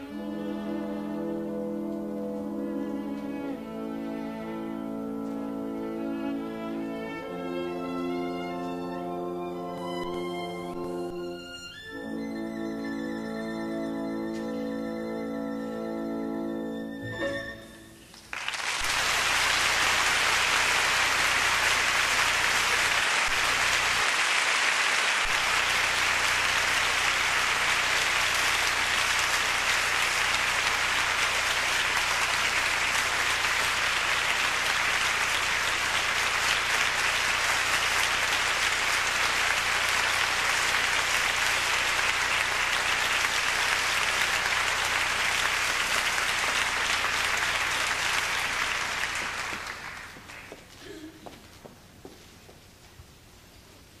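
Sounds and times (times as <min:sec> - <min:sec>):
orchestra chord: 0:00.0 - 0:18.0
audience applause: 0:18.0 - 0:51.3.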